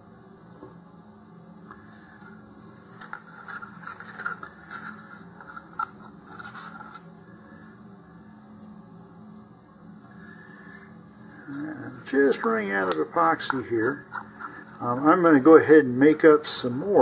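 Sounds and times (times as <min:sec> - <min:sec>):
stir stick scraping paper cup: 0:03.0 - 0:07.1, 0:12.3 - 0:15.4.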